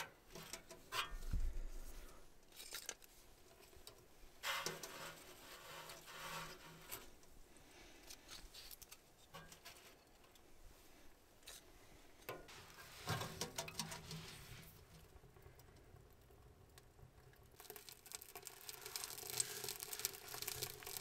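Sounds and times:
kindling fire crackling: 1.5 - 21.0
wood shavings rustling and clicking: 17.6 - 21.0.

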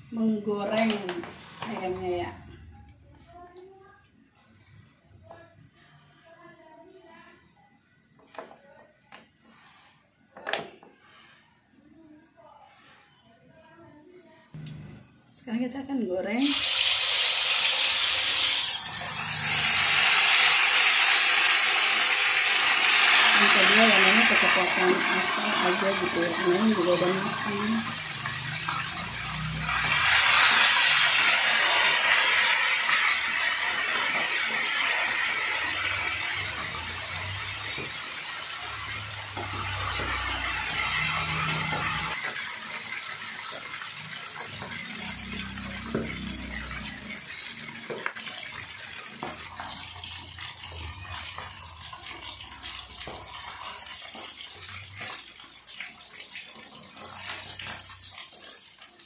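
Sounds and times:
chicken sizzling in hot oil: 16.3 - 59.0.

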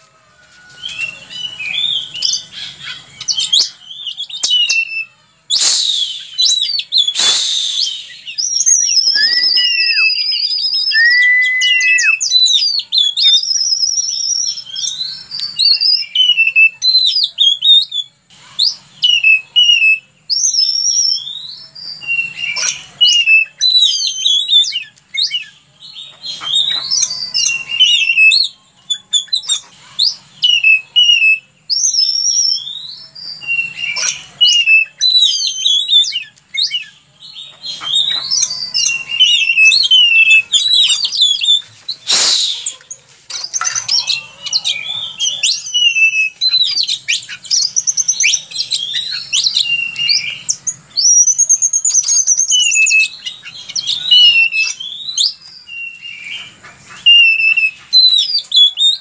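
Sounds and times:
songbird singing: 0.0 - 59.0.

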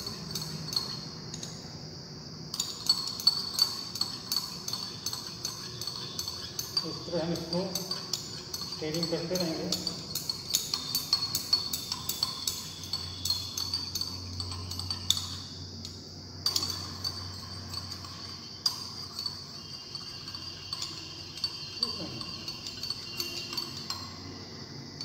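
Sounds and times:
glass rod clinking in a beaker: 0.0 - 1.7, 2.5 - 25.0.

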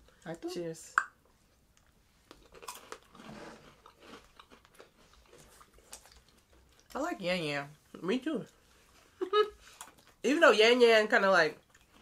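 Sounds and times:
crunching biscuit sticks: 2.3 - 6.9.

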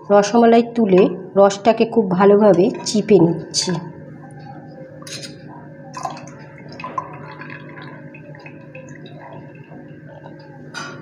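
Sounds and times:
syrup dripping and splashing: 6.0 - 10.4.

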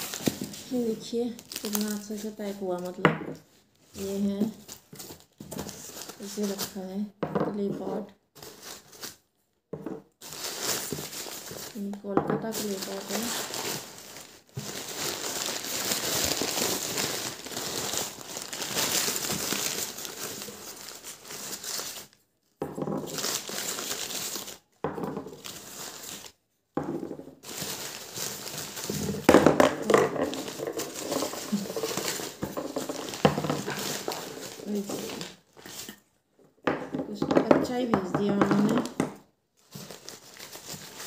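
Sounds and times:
paper rustling and crinkling: 0.0 - 3.0, 4.0 - 6.8, 10.2 - 22.2, 23.0 - 26.4, 27.4 - 36.0, 39.6 - 41.0
cups knocking on wooden table: 9.8 - 10.0, 26.8 - 27.1.

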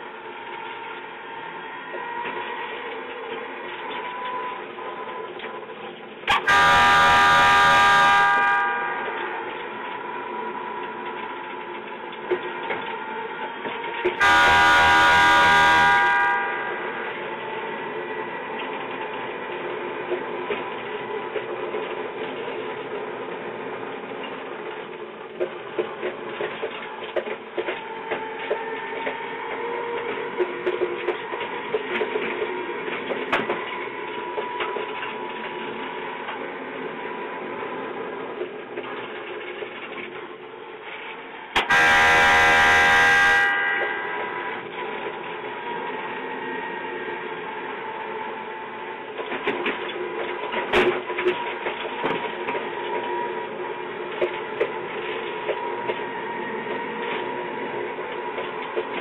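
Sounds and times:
miniature train motor whine: 0.0 - 19.6, 41.4 - 49.7
train horn blasts: 6.2 - 9.9, 13.9 - 17.6, 41.6 - 45.1.

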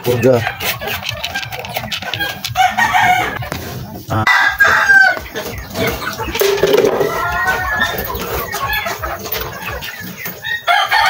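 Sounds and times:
chickens clucking: 0.0 - 11.0
rooster crowing: 4.3 - 5.2, 6.4 - 8.1, 10.7 - 11.0.

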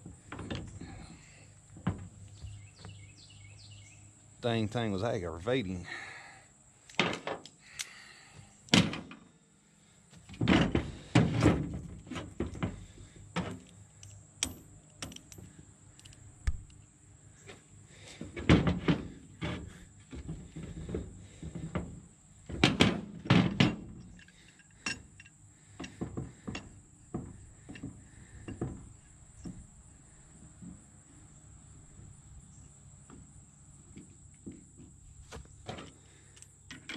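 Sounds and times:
metal clanking on tailgate: 22.5 - 25.0.

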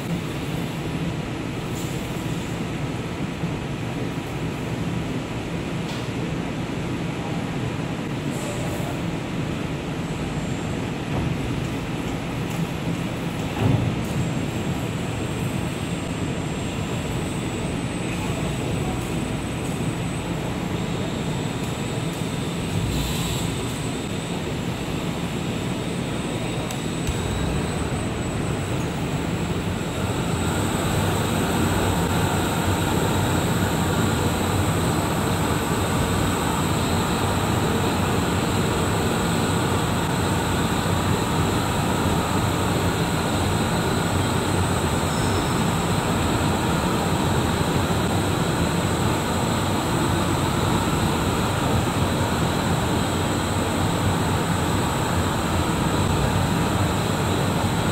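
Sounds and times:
high mechanical whine: 14.4 - 57.9.

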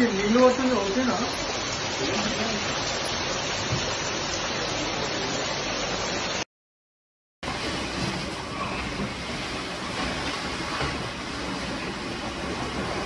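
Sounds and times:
water pouring from burst pipe: 0.0 - 6.4.

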